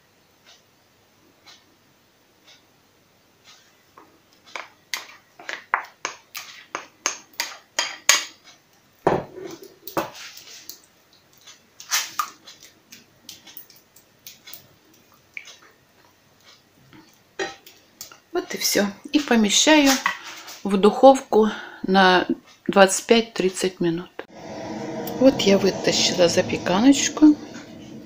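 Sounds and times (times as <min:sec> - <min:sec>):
utensil scraping and tapping bowl: 0:03.6 - 0:08.4.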